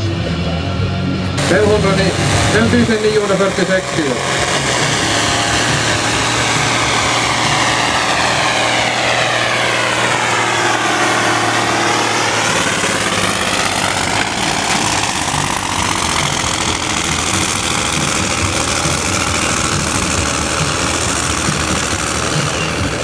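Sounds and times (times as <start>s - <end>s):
tractor diesel engine under load: 0.0s - 23.0s.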